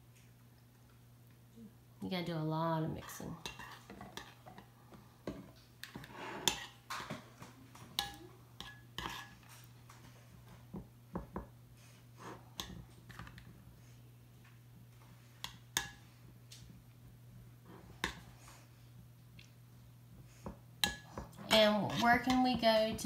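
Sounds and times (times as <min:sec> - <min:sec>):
metal spoon scraping ceramic bowl: 0:06.0 - 0:06.8, 0:08.6 - 0:09.4.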